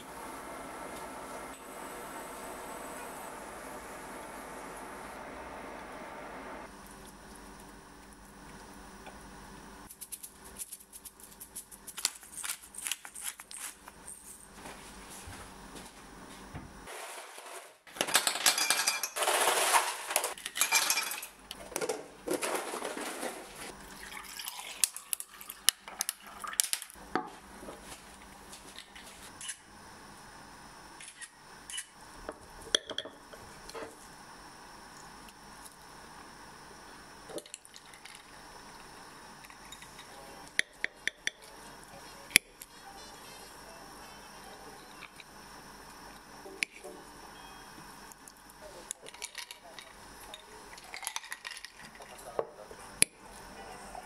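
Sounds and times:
dishes clinking and knocking: 20.5s - 22.5s.

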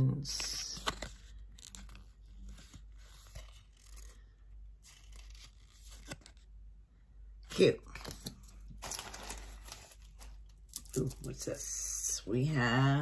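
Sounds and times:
paper card rustling and scraping: 0.3s - 6.6s, 7.9s - 11.4s.

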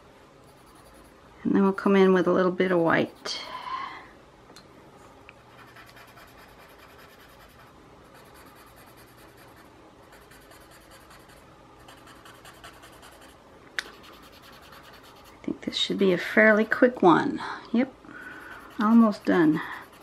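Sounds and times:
blending stump scratching on paper: 5.6s - 15.4s, 18.4s - 20.0s.

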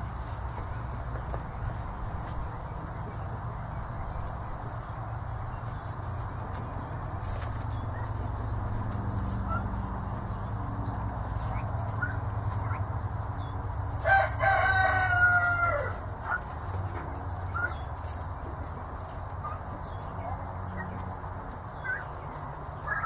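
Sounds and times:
young turkeys peeping: 0.0s - 23.0s
turkey drawn-out call: 21.7s - 23.0s.

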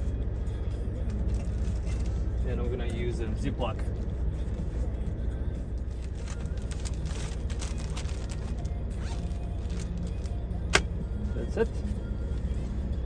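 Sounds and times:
plastic packaging crinkling: 6.1s - 8.7s.

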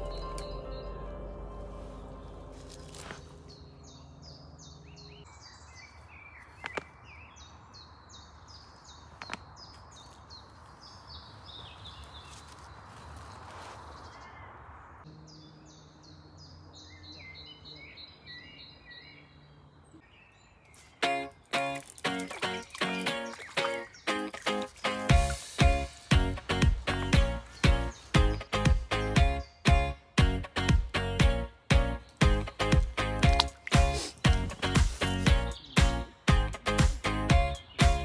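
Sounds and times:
quiet background music: 0.0s - 3.6s
songbirds chirping: 0.0s - 38.0s.

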